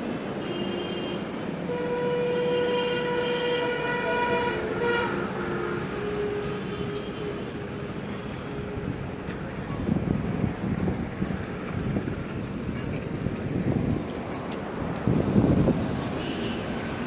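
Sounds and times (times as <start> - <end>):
horn blasts: 0.4 - 9.1.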